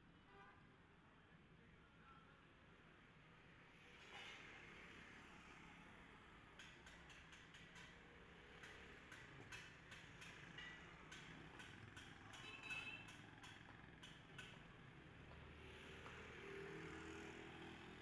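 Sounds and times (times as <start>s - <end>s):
distant traffic hum: 4.6s - 18.0s.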